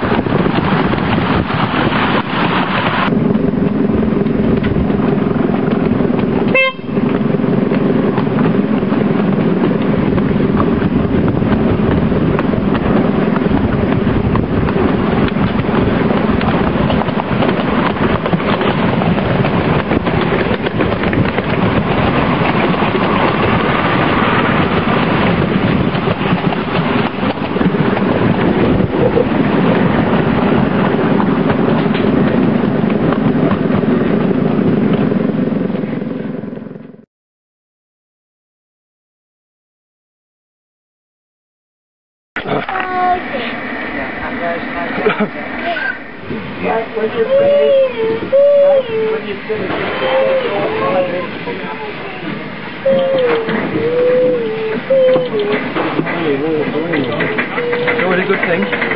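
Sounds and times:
miniature train rumbling on track: 0.0 - 37.0, 42.4 - 58.9.

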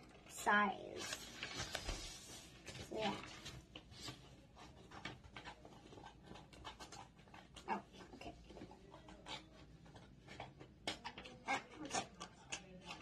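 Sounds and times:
paper rustling: 0.3 - 10.5
scissors cutting paper: 0.9 - 13.0.

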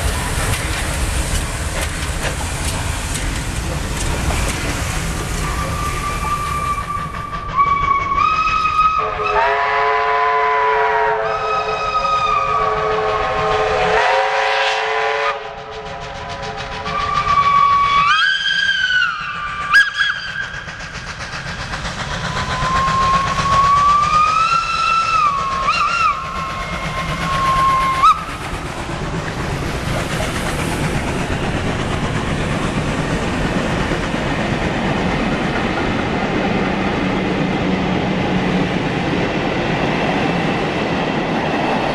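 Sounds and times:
train carriages rumbling on rails: 0.0 - 41.9
steam locomotive whistle blasts: 5.4 - 15.8, 17.0 - 20.5, 22.5 - 28.3.

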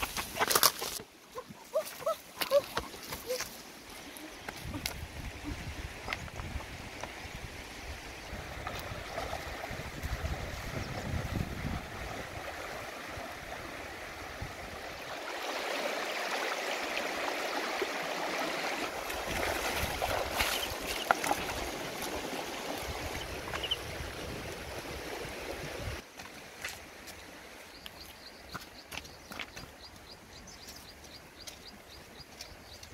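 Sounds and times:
wind rumble on microphone: 4.5 - 15.0
river water rushing and splashing: 6.7 - 27.7.

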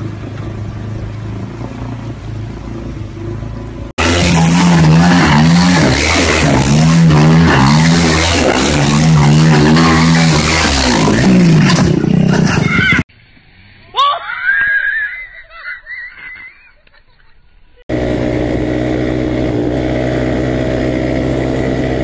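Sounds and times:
small boat motor humming: 0.0 - 13.0, 17.9 - 22.0
quad engine revving hard: 3.9 - 13.1, 17.9 - 22.0.

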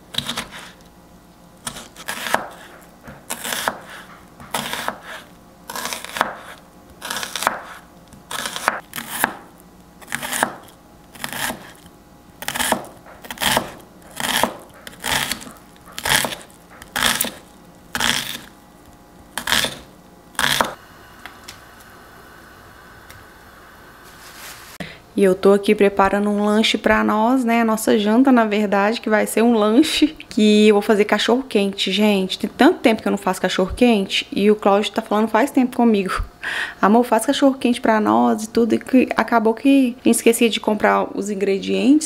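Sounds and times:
knife chopping on cutting board: 0.1 - 0.7, 1.6 - 11.8, 12.4 - 17.4, 19.4 - 20.8.

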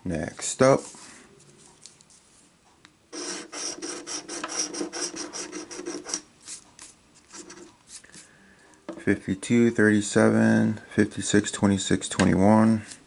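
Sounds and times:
lottery ticket being scratched: 3.2 - 8.2.

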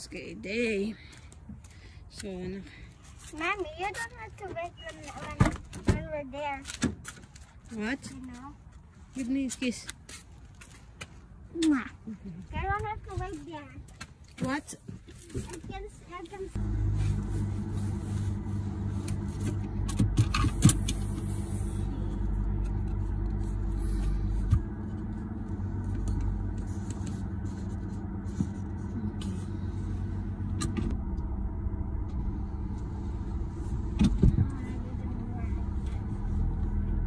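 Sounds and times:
car engine rumble: 0.0 - 6.8, 14.8 - 37.0.

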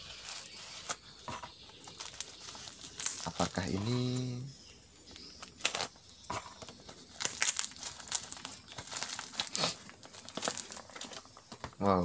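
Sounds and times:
plastic packaging crinkling: 1.8 - 4.3, 5.4 - 6.0, 6.6 - 11.8.

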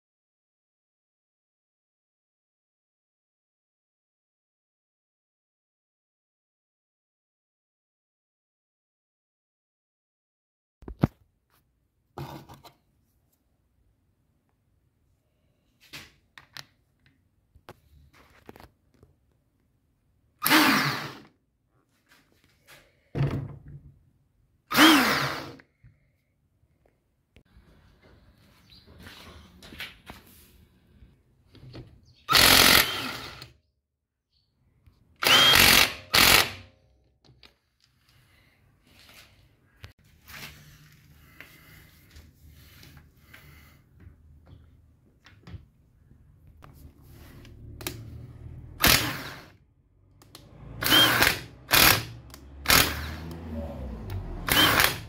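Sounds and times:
impact wrench hammering: 50.8 - 53.4.

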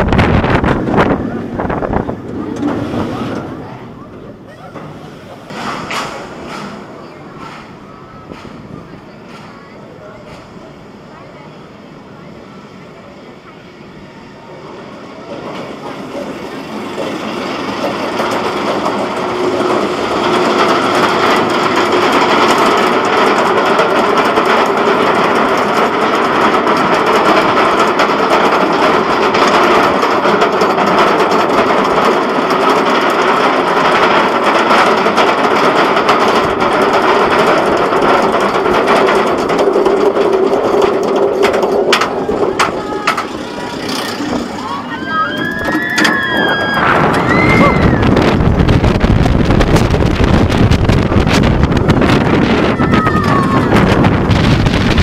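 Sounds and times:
wind rushing: 0.0 - 3.9, 43.4 - 55.0
roller coaster wheels rumbling: 0.0 - 55.0.

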